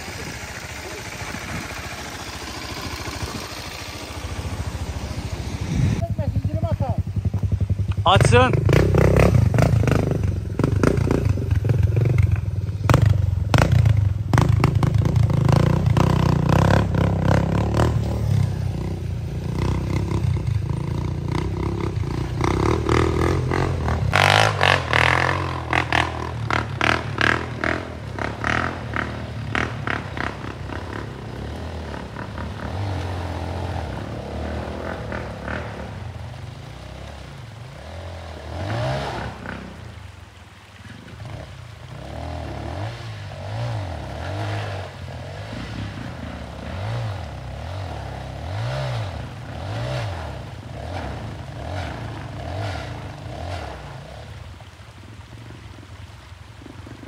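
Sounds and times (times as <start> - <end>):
motorcycle engine revving: 0.0 - 55.3.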